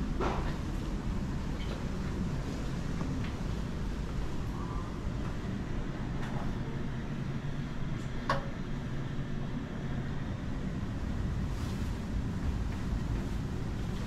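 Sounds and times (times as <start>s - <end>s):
low rumble of room noise: 0.0s - 14.0s
faint footsteps: 11.3s - 14.0s.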